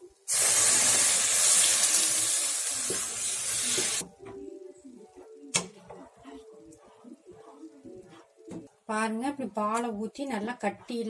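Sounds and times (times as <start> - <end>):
milk sizzling in a hot pan: 0.0 - 4.0.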